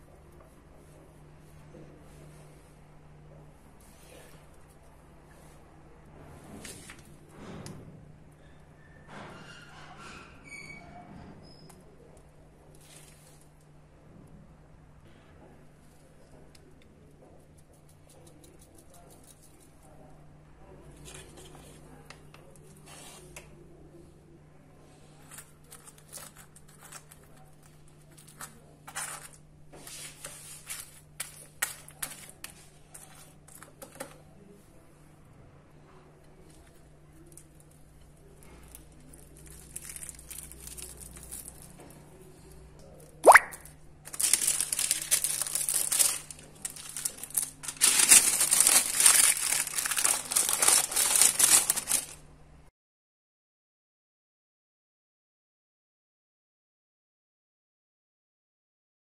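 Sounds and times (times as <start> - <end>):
paper crinkling: 25.2 - 34.2, 36.6 - 42.0, 44.0 - 52.2.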